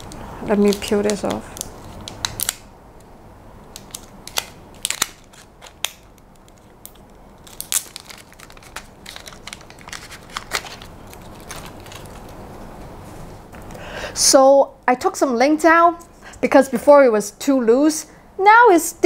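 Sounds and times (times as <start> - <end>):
plastic film crinkling: 0.0 - 2.7, 3.7 - 12.6.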